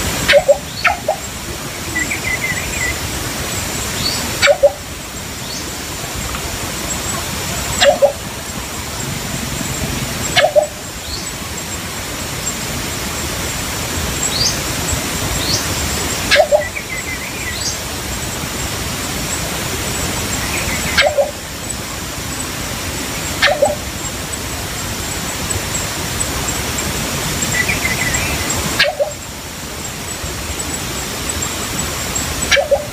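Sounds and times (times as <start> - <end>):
steady hiss: 0.0 - 32.9
high bird chirps: 0.3 - 1.3, 3.9 - 4.8, 7.1 - 8.3, 9.4 - 11.4, 15.4 - 17.8, 20.4 - 21.4, 23.4 - 23.8, 27.4 - 29.2, 32.4 - 32.9.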